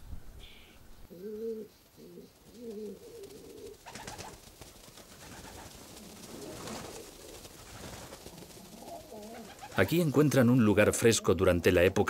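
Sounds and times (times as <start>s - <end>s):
pigeons cooing: 0.4s - 4.4s, 5.1s - 10.1s
flock wingbeats taking off: 2.7s - 10.3s.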